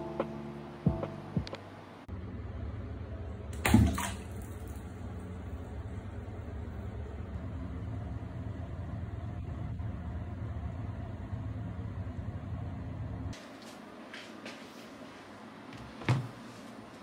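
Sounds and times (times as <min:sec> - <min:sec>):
water running into a bathtub: 0:03.6 - 0:04.9.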